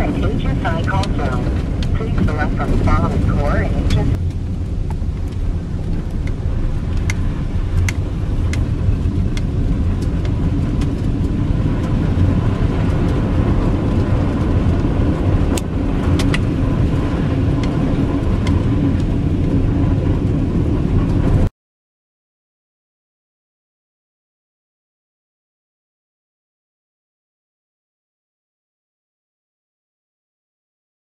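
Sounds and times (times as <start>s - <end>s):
engine and tyres rumbling: 0.0s - 21.5s.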